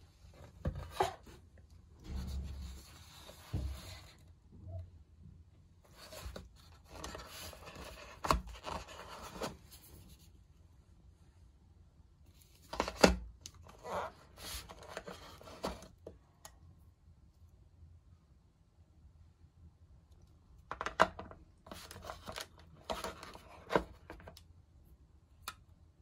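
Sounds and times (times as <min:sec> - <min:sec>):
plastic scraping and rubbing: 0:05.9 - 0:10.1, 0:21.7 - 0:24.3.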